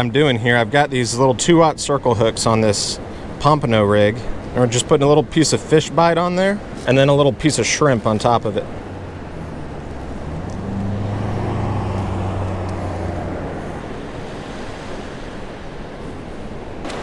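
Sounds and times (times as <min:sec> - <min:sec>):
vehicle driving past: 0:08.6 - 0:15.5.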